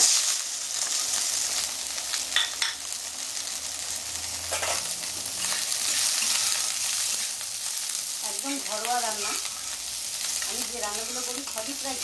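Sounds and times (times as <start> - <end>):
onion sizzling in oil: 0.0 - 12.0
spatula scraping a pan: 4.5 - 7.4, 8.4 - 11.9.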